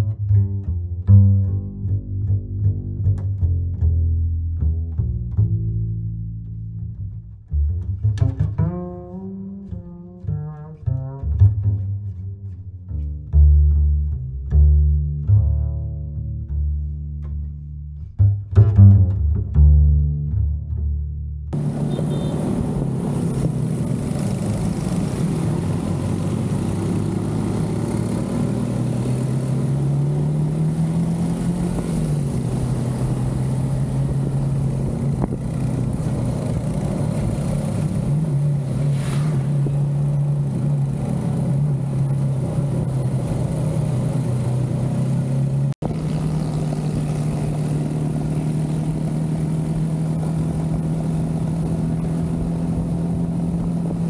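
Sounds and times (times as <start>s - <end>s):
wind and road rush: 21.5s - 54.0s
motorcycle engine running: 21.6s - 38.8s, 39.5s - 54.0s.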